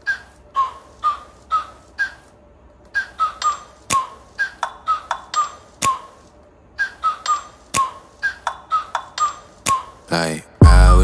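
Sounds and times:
hip hop beat with whistle notes: 6.8 - 10.0, 10.6 - 11.0.

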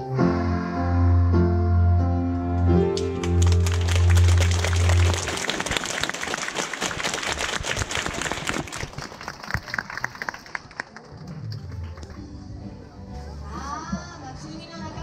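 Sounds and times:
audience applause: 3.0 - 12.2.

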